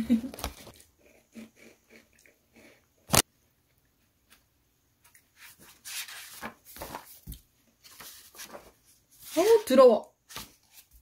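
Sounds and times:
book pages rustling: 0:05.1 - 0:11.0.

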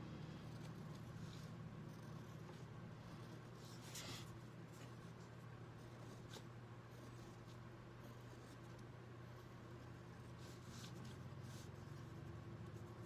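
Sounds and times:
steady low hum: 0:00.0 - 0:13.0
pen scratching on paper: 0:00.1 - 0:13.0.

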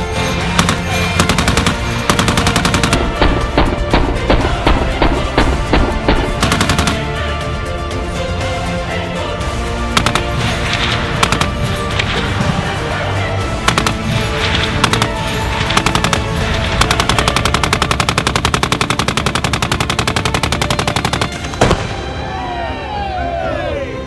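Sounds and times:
music: 0:00.0 - 0:24.0
machine gun firing: 0:00.4 - 0:07.2, 0:10.0 - 0:12.7, 0:13.6 - 0:21.9.

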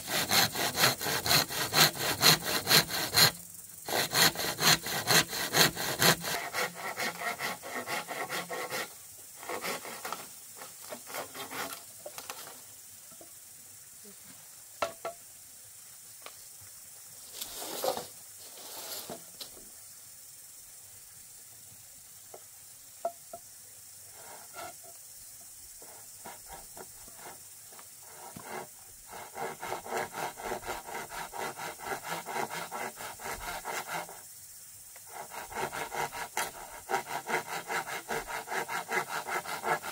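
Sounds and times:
hand saw cutting bamboo: 0:00.0 - 0:12.6, 0:24.1 - 0:24.8, 0:25.8 - 0:27.4, 0:28.0 - 0:34.2, 0:35.0 - 0:39.9.

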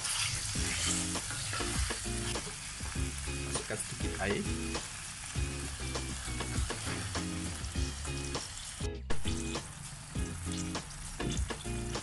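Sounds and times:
spatula stirring in pan: 0:00.0 - 0:03.0
chicken sizzling and bubbling: 0:00.0 - 0:12.0
background music: 0:00.6 - 0:12.0.

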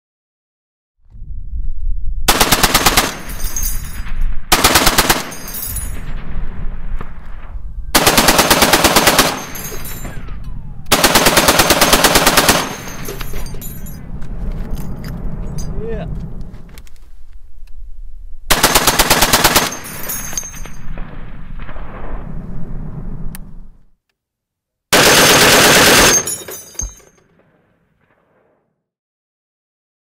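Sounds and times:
machine gun firing bursts: 0:02.3 - 0:03.4, 0:04.5 - 0:05.8, 0:08.0 - 0:10.2, 0:10.9 - 0:13.3, 0:18.5 - 0:20.1, 0:24.9 - 0:26.5
rolling gunfire echo: 0:02.3 - 0:16.8, 0:18.5 - 0:23.8, 0:24.9 - 0:28.7.

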